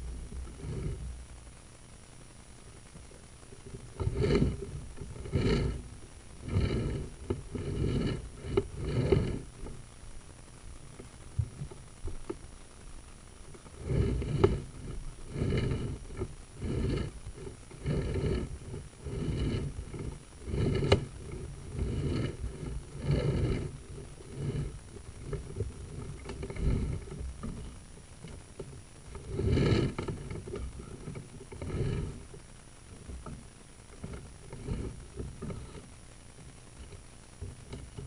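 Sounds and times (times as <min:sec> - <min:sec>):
cable rubbing in drain pipe: 0:00.0 - 0:01.2, 0:03.5 - 0:09.9, 0:13.5 - 0:38.0.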